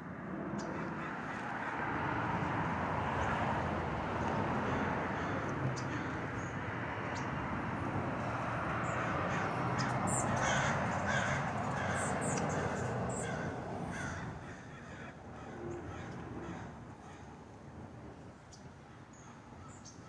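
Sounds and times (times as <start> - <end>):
crows cawing: 0.6 - 7.2, 8.1 - 17.3.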